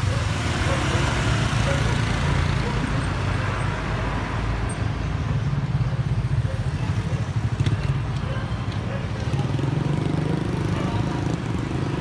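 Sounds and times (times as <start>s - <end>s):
traffic engine rumble: 0.0s - 12.0s.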